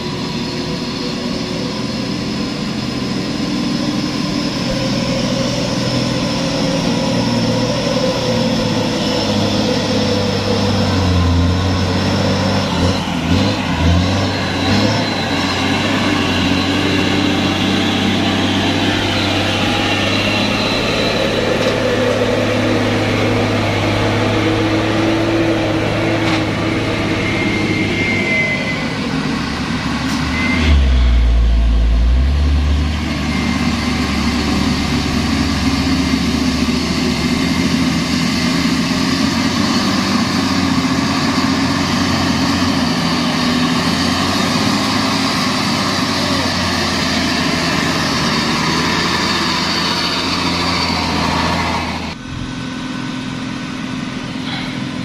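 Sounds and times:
truck diesel engines running: 0.0s - 55.0s
deep low rumble: 29.6s - 35.3s.

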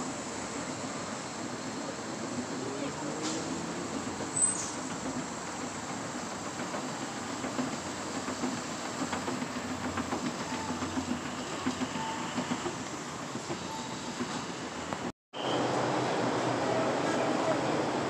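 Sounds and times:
escalator steps clattering: 3.2s - 15.1s
short high squeak: 13.7s - 14.4s.

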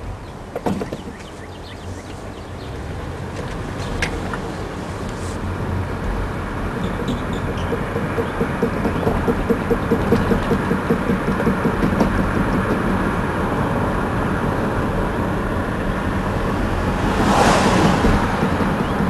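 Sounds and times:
car cabin road noise: 0.0s - 19.0s
rhythmic knocking from wheel: 5.8s - 13.6s, 16.4s - 19.0s
rush of noise: 13.2s - 19.0s.

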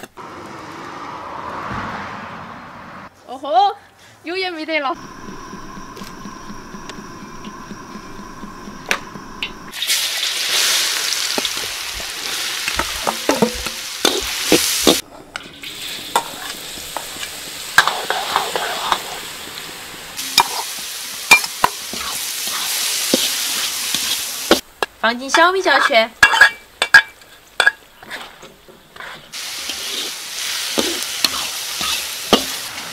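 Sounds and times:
garlic sizzling in hot oil: 5.0s - 24.6s, 29.3s - 32.9s.

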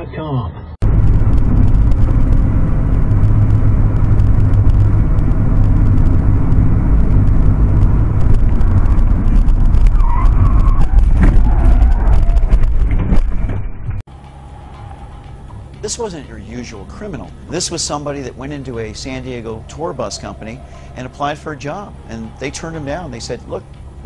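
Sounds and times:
road and wind noise rumble: 0.0s - 24.0s
tyre squeal: 9.8s - 12.6s.

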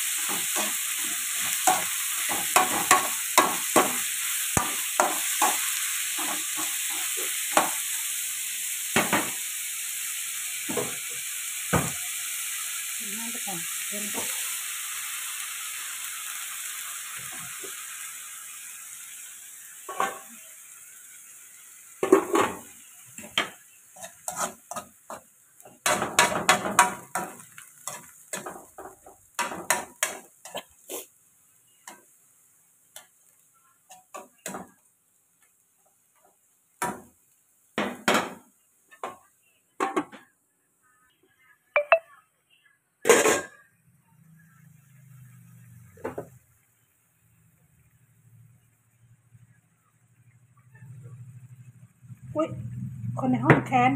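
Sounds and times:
spatula scraping a wok: 0.0s - 8.2s, 19.1s - 20.8s, 22.0s - 31.2s
chicken sizzling in oil: 0.0s - 40.1s, 43.1s - 53.9s.

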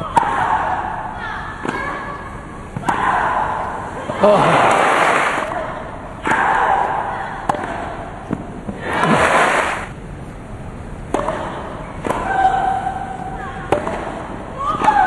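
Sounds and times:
tennis ball struck by rackets: 7.4s - 9.2s, 11.1s - 12.4s, 13.7s - 15.0s.

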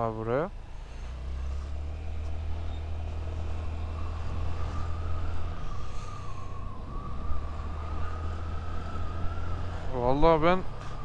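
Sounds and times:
wind rumble on microphone: 2.2s - 11.0s.

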